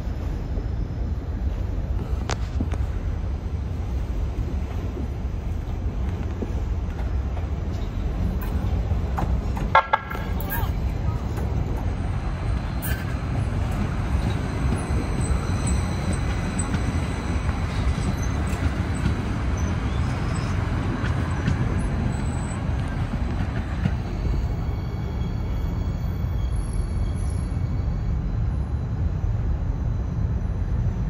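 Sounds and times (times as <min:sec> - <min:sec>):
train wheels rumbling on rail: 0:00.0 - 0:31.0
faint high-pitched squeals: 0:23.8 - 0:31.0.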